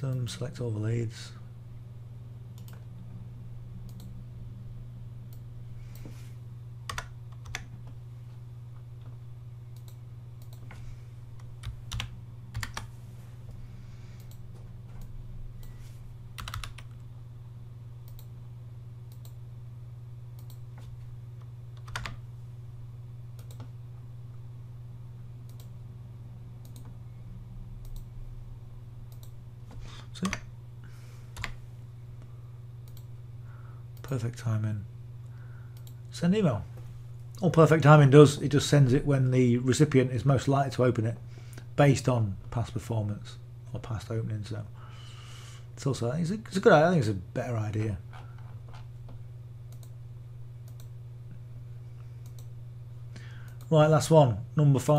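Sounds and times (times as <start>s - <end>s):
low hum: 0.0s - 53.7s
keyboard and mouse clicks: 20.4s - 20.9s, 23.4s - 23.7s, 48.7s - 50.0s.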